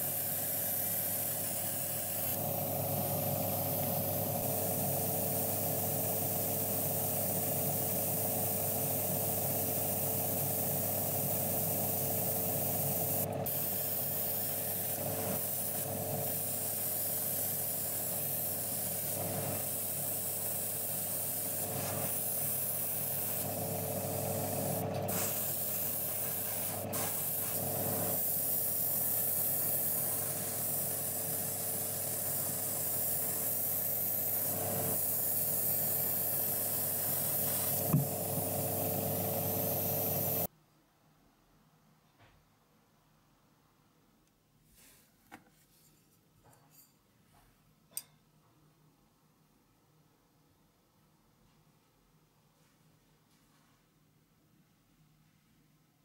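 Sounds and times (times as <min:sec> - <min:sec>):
airbrush air hiss: 0:00.0 - 0:40.5.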